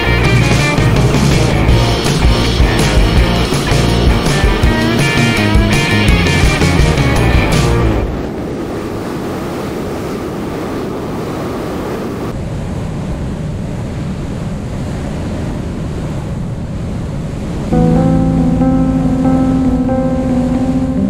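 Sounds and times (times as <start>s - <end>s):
wind rushing on microphone: 7.3s - 17.8s.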